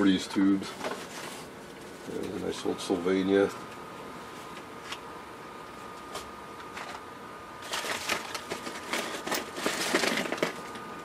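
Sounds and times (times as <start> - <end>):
cardboard boxes rustling and clicking: 7.6 - 10.8.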